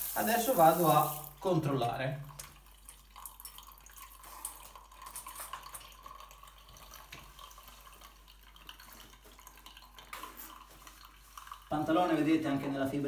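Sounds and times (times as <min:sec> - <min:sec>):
water dripping onto a shower tray: 0:00.0 - 0:03.6.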